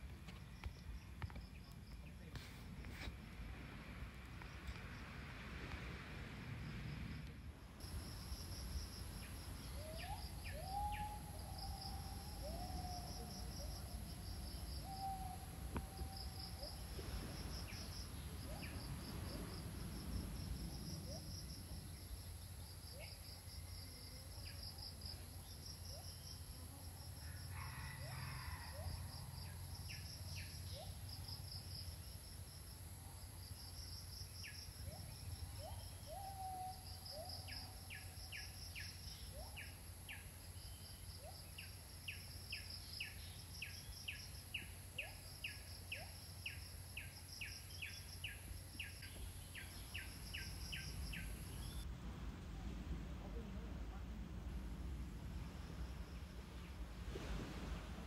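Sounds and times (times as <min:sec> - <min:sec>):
low background rumble: 0:51.0 - 0:58.0.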